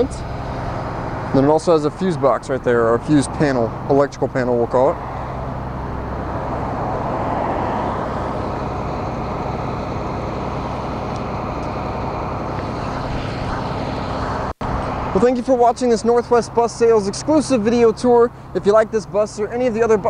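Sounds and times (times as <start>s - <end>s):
bus diesel engine idling: 0.0s - 7.2s, 7.8s - 20.0s
broad rushing noise: 0.2s - 16.2s.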